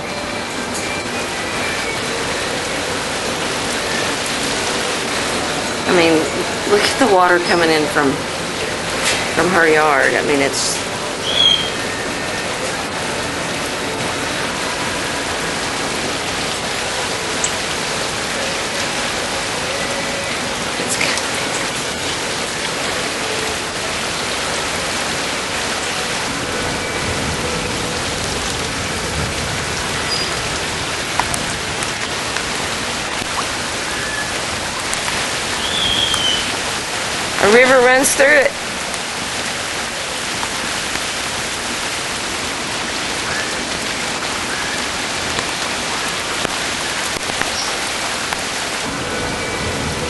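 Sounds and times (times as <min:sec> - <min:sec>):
heavy rain pouring: 0:00.0 - 0:50.0
faint drip clicks: 0:34.9 - 0:36.6.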